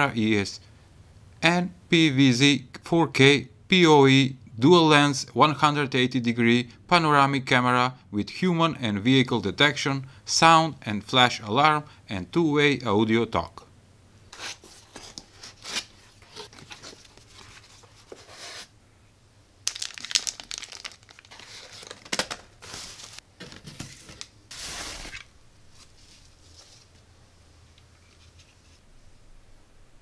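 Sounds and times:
packaging crinkling and tearing: 0:19.6 - 0:23.2.

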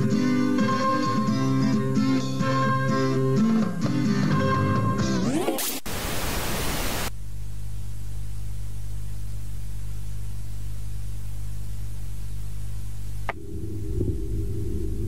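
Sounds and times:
tv static burst: 0:05.3 - 0:07.1
low electrical hum: 0:05.9 - 0:15.0.

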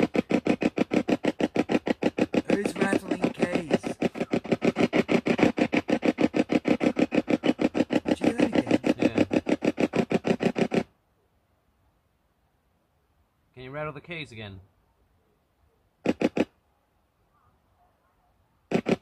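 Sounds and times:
radio static sweeping choppily: 0:02.4 - 0:05.7, 0:06.7 - 0:09.4.

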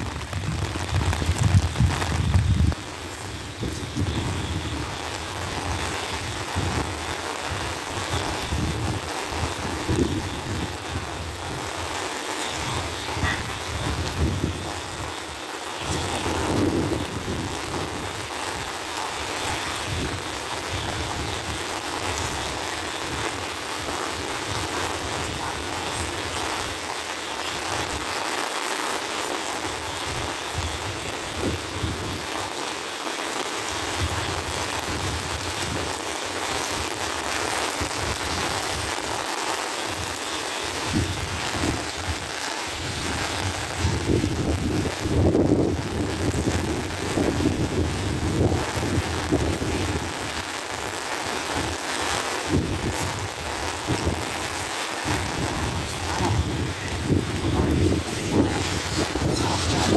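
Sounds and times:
wind buffeting microphone: 0:00.0 - 0:18.7, 0:29.9 - 0:32.3, 0:33.9 - 0:36.0, 0:40.8 - 0:50.4, 0:52.4 - 0:59.9
rain on a wet road: 0:00.0 - 0:59.9.

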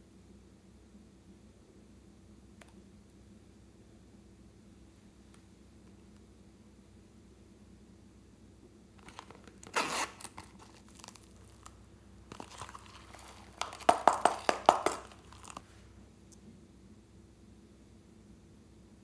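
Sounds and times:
plastic crinkles and clicks: 0:09.0 - 0:15.6
zipper rasp: 0:09.7 - 0:10.7.

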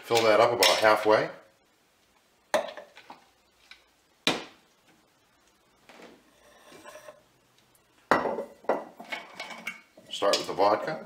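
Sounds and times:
soft knocks and shuffling: 0:04.8 - 0:09.7.

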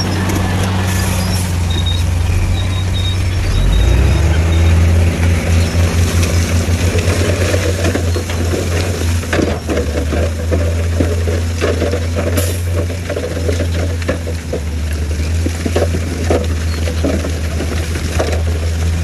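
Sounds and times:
diesel truck engine revving: 0:00.0 - 0:10.4
knocks and clatter: 0:05.2 - 0:19.0.

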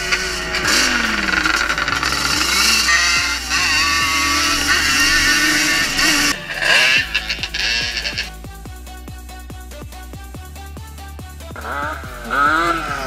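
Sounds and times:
quad engine revving: 0:00.0 - 0:08.6, 0:11.4 - 0:13.0.

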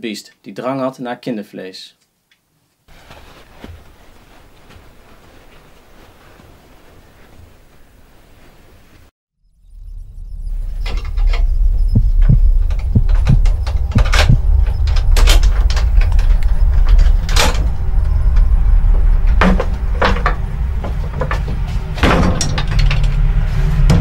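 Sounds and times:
low rumbling drone: 0:09.4 - 0:24.0
sharp knocks and bangs: 0:10.9 - 0:18.5, 0:19.2 - 0:24.0.

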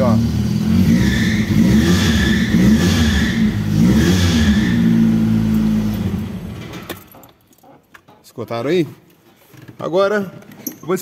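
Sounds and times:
pickup engine revving: 0:00.0 - 0:06.6.

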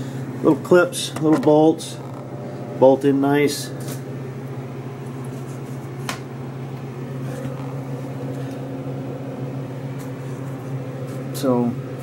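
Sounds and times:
low machine hum: 0:00.0 - 0:12.0.

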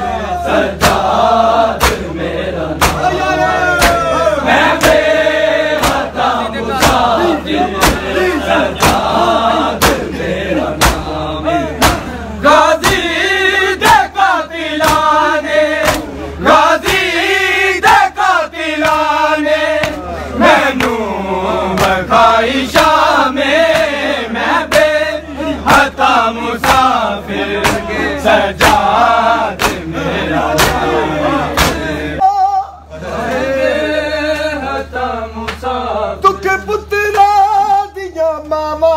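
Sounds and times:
men chanting together: 0:00.0 - 0:32.2, 0:32.8 - 0:38.9
hands slapping chests: 0:01.7 - 0:02.1, 0:02.8 - 0:03.1, 0:03.8 - 0:04.1, 0:04.7 - 0:05.0, 0:05.7 - 0:06.1, 0:06.8 - 0:07.1, 0:07.8 - 0:08.1, 0:08.8 - 0:09.1, 0:09.8 - 0:10.1, 0:10.8 - 0:11.1, 0:11.8 - 0:12.1, 0:14.8 - 0:15.2, 0:15.8 - 0:16.1, 0:16.8 - 0:17.1, 0:18.8 - 0:19.1, 0:19.8 - 0:20.0, 0:23.6 - 0:24.0, 0:24.7 - 0:24.9, 0:26.6 - 0:27.0, 0:27.6 - 0:27.9, 0:28.6 - 0:28.9, 0:29.6 - 0:29.9, 0:30.6 - 0:30.9, 0:31.6 - 0:31.9.

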